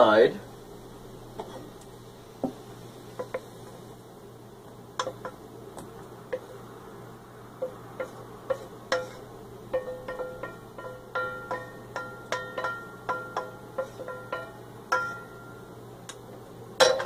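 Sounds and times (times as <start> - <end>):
low steady hum: 0.0 - 17.0
wooden spatula scraping a skillet: 7.6 - 15.2.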